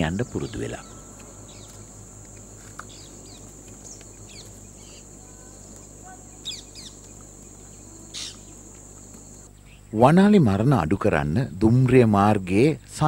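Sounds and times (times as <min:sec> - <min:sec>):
high-pitched insect drone: 0:00.0 - 0:09.5
bird chirps: 0:00.0 - 0:09.9.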